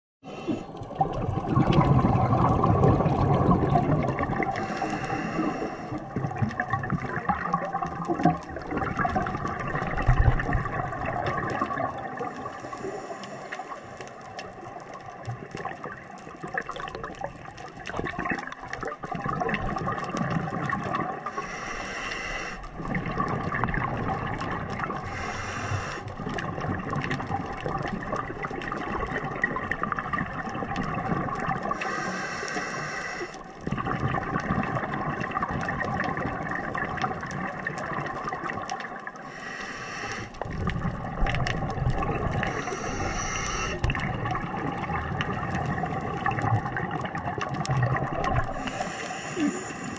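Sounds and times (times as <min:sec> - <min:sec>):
exhaled bubbles gurgling underwater: 0:00.2 - 0:49.9
regulator air hiss: 0:04.6 - 0:05.9, 0:21.4 - 0:22.6, 0:25.1 - 0:26.0, 0:31.8 - 0:33.3, 0:39.3 - 0:40.3, 0:42.5 - 0:43.8, 0:48.6 - 0:49.9.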